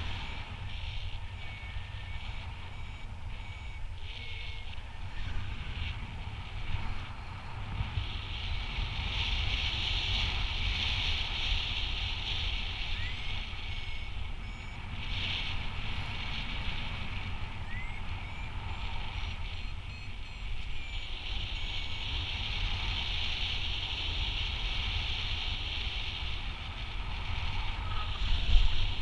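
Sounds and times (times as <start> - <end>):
high electronic beeping: 0.0 - 5.2, 12.9 - 15.0, 17.6 - 22.1
wind rushing over microphone: 0.0 - 29.0.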